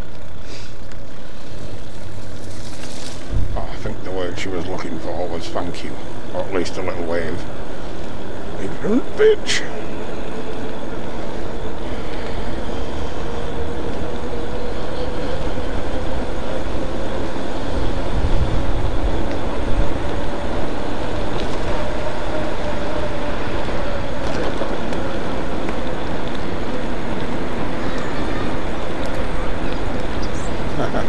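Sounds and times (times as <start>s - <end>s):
road rumble: 0.0s - 31.0s
wind on microphone: 3.2s - 3.6s, 9.8s - 31.0s.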